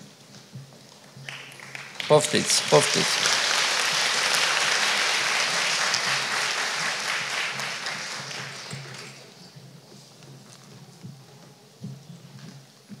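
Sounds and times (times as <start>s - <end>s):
audience applauding: 1.2s - 9.4s.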